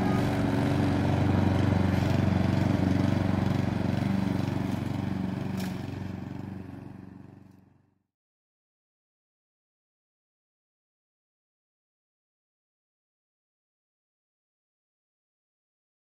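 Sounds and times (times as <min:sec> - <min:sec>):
lawn mower engine running: 0:00.0 - 0:07.9.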